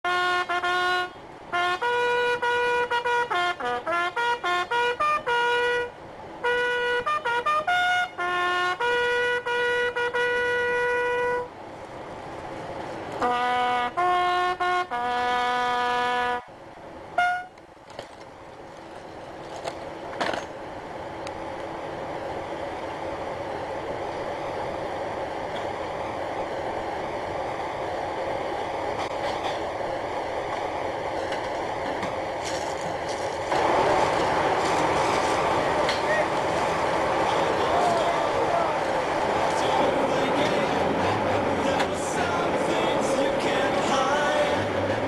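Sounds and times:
bugle call: 0.1s - 11.5s, 17.2s - 17.6s.

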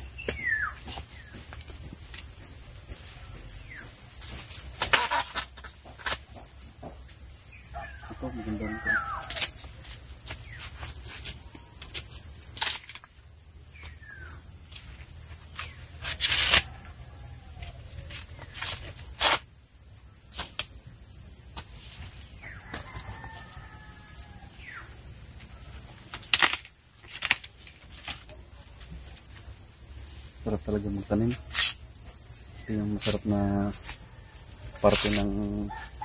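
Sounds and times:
insect chorus buzzing: 0.0s - 36.0s
sharp cracks and rustles: 4.2s - 6.4s, 9.2s - 13.2s, 15.4s - 16.8s, 26.0s - 28.4s, 31.2s - 31.8s.

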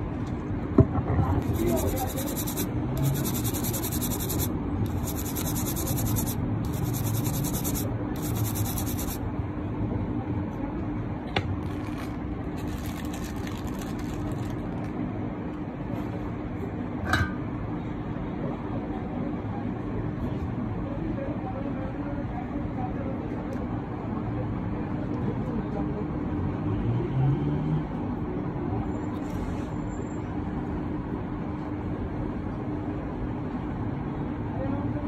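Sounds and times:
brush scrubbing circuit board: 1.4s - 9.2s
steady low hum: 1.4s - 9.6s.

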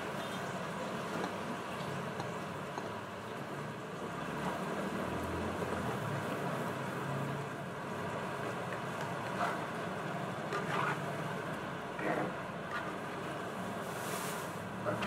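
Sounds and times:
spatula scraping a pan: 10.4s - 11.2s.

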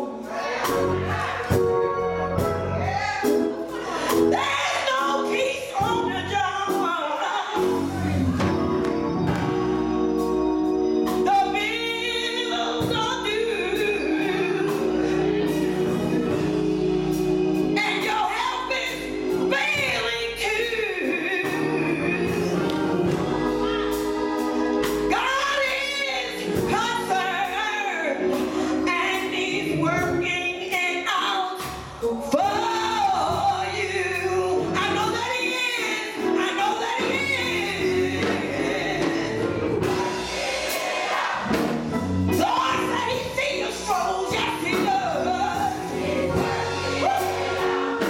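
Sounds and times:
gospel choir singing: 0.0s - 30.3s, 31.0s - 48.0s
woman singing into a microphone: 17.8s - 22.2s, 25.1s - 39.3s, 42.4s - 45.8s.

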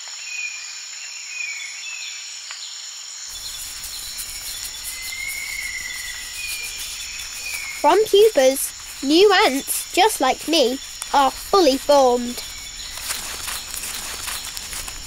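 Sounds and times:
insects chorus: 0.2s - 15.0s
bird whistles: 3.4s - 7.8s
drawn-out whistle: 3.4s - 7.9s.

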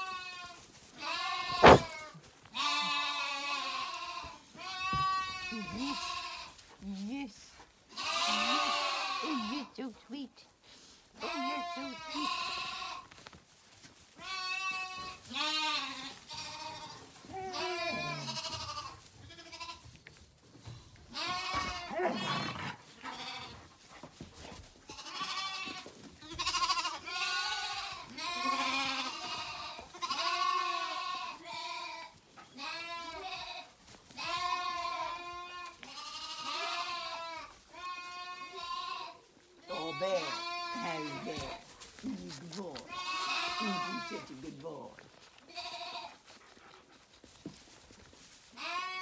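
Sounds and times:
lambs bleating: 0.0s - 6.6s, 7.9s - 9.8s, 11.2s - 13.1s, 14.1s - 20.0s, 20.7s - 46.7s, 48.5s - 49.0s.

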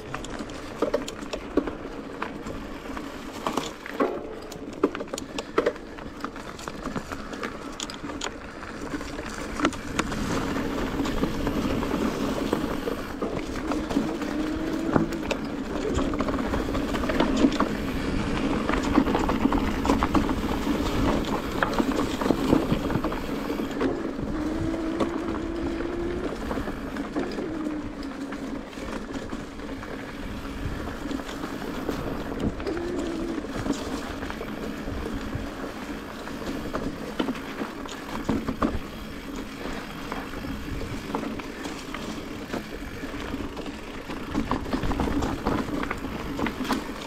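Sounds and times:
bike knocking and rattling: 0.0s - 47.0s
bike tyres rolling over stones: 0.0s - 47.0s.

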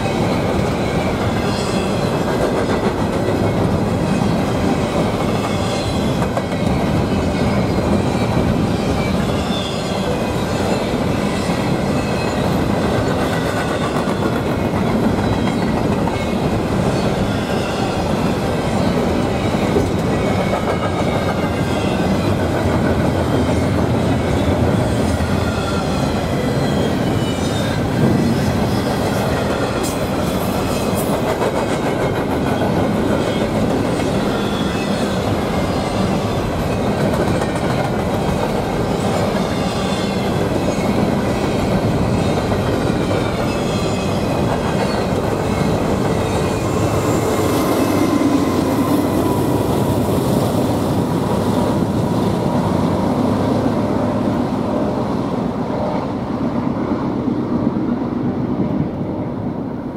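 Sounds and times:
train wheels clacking over rails: 0.0s - 53.8s
faint high wheel squeal: 5.3s - 12.6s, 23.3s - 27.9s, 33.9s - 36.6s.

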